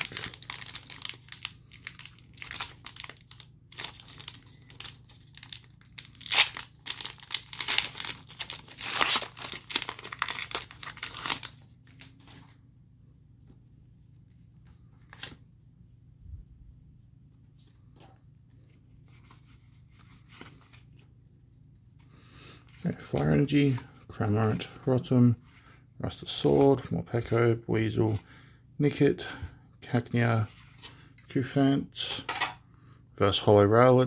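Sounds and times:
foil wrapper tearing and crinkling: 0.0s - 12.5s.

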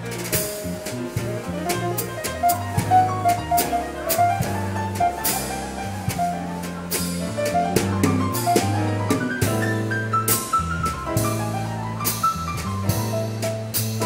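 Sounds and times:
bass guitar notes: 0.0s - 14.0s
piano: 0.0s - 14.0s.

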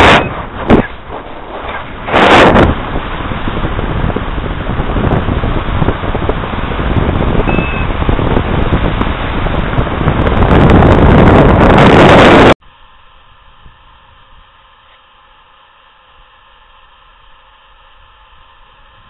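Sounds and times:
wind buffeting microphone: 0.0s - 12.6s.

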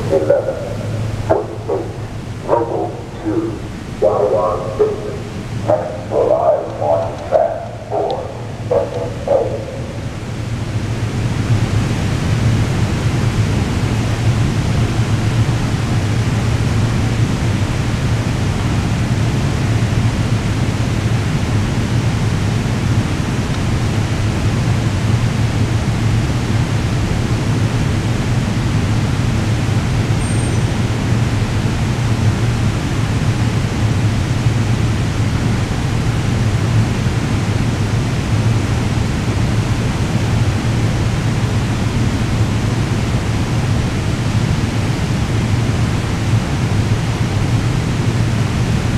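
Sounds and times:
low hum: 0.0s - 12.6s.

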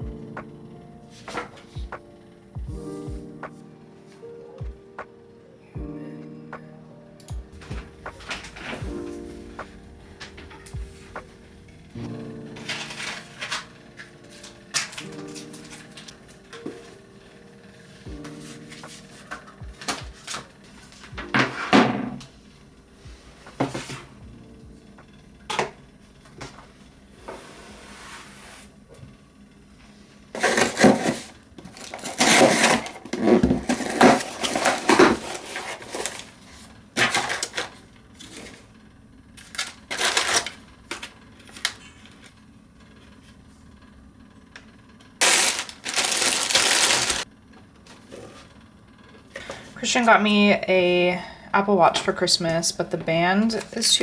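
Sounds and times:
plastic mailer crinkling: 30.4s - 38.6s, 39.4s - 42.3s, 45.2s - 47.3s
cardboard box being cut open: 32.0s - 35.3s.

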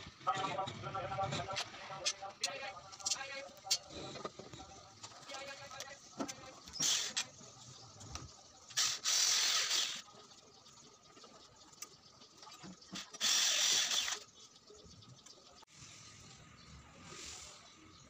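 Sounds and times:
electric drill driving screws: 13.0s - 14.2s.

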